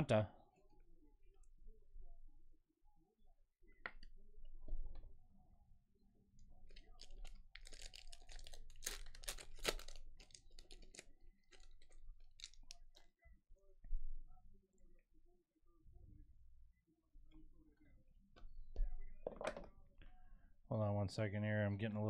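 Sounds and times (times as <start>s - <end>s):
plastic packaging crackling: 6.7s - 13.0s.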